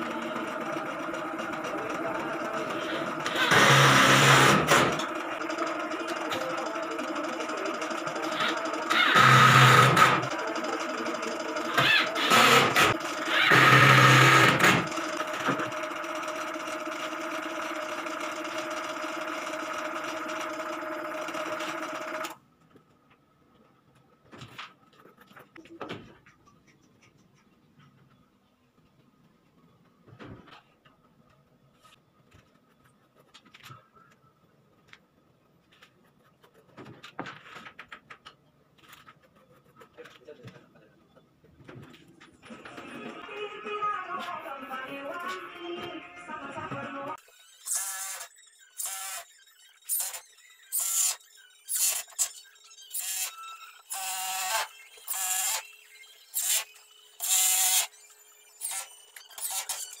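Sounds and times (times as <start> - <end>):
cordless drill whine: 2.7 - 5.1, 8.4 - 10.3, 11.7 - 15.7, 47.2 - 60.0.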